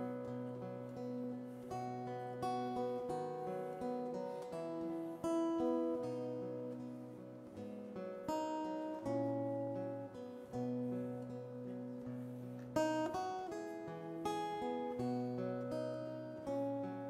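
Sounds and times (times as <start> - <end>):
acoustic guitar chords: 0.0 - 17.0.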